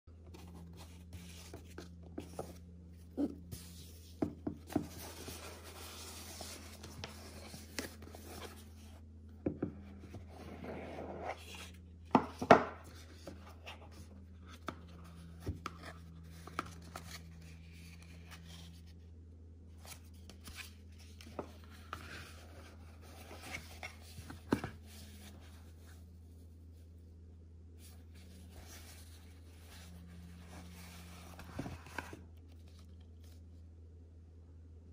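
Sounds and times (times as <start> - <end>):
steady low hum: 0.1 - 34.9
hands handling a cardboard box: 0.3 - 8.9.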